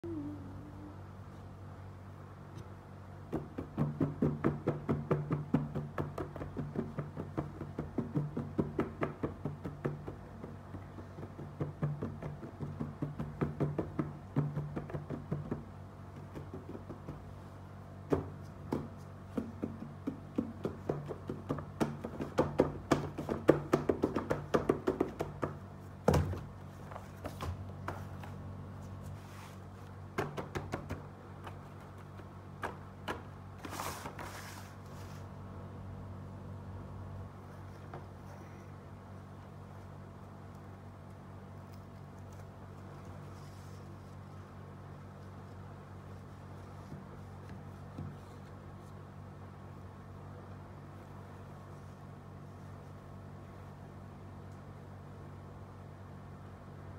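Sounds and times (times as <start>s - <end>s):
steady low hum: 0.0s - 56.9s
fingers tapping on cardboard box: 3.3s - 17.4s, 18.1s - 26.4s, 30.2s - 33.3s.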